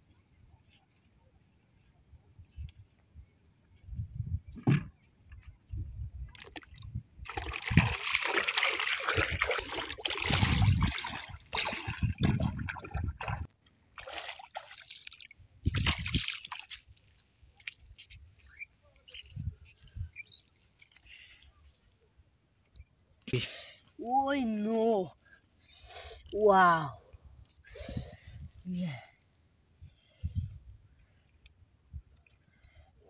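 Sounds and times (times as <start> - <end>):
feet wading through water: 6.3 - 19.3.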